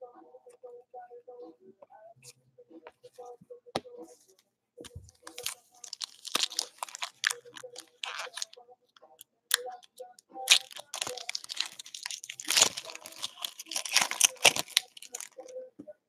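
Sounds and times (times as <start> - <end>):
plastic wrappers crinkling and tearing: 5.2 - 8.6, 9.5 - 15.5.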